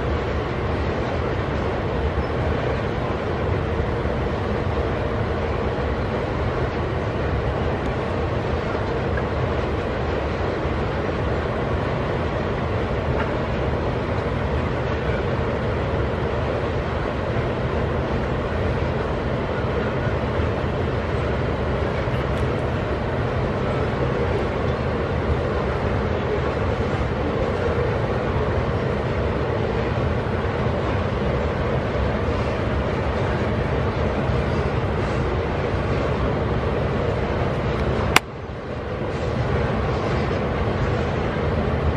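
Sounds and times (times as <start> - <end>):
freight train wheels rumbling on rails: 0.0 - 41.9.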